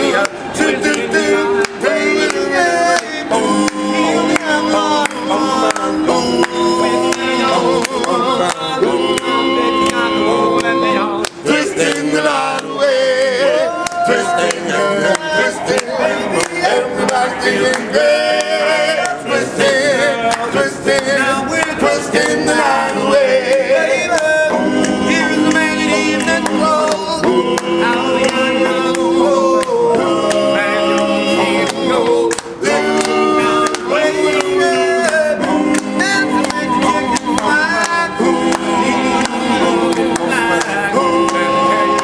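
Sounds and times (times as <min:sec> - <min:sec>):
men singing a cappella: 0:00.0 - 0:42.0.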